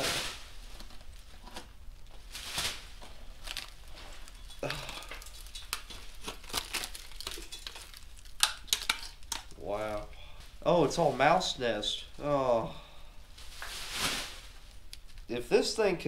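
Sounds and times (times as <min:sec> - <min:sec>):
crumbling rust and debris: 0:00.0 - 0:09.6.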